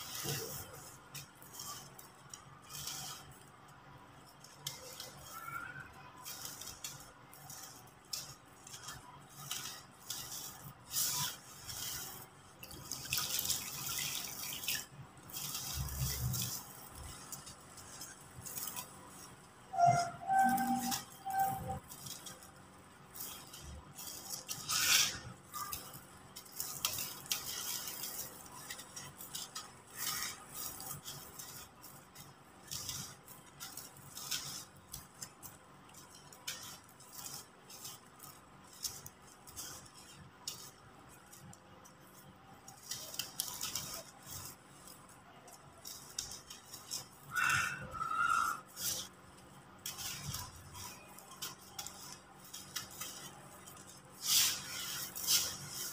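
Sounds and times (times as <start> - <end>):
short squeaky note: 19.7 - 21.8.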